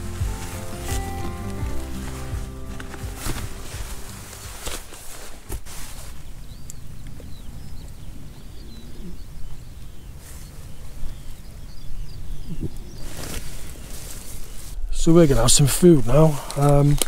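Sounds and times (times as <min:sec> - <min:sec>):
bird chirps: 0:06.4 - 0:13.2.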